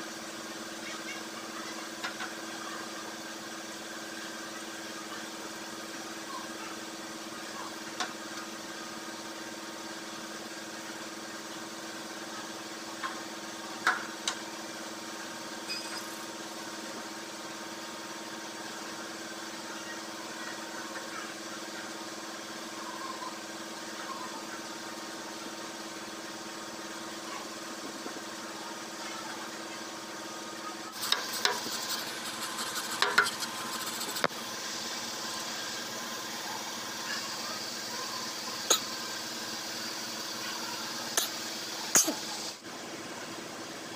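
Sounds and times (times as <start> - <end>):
steady mechanical hum: 0.0 - 43.9
sharp metal taps: 33.0 - 33.4.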